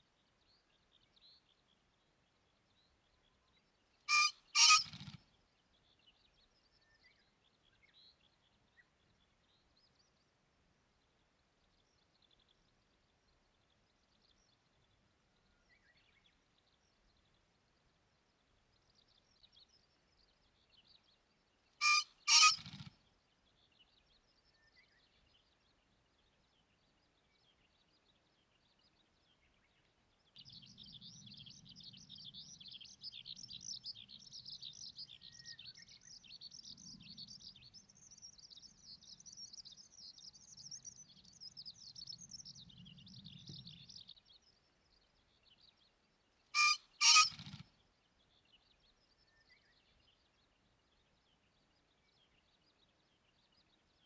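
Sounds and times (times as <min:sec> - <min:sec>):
pheasant crowing: 0:04.1 - 0:05.2, 0:21.8 - 0:22.9, 0:46.6 - 0:47.6.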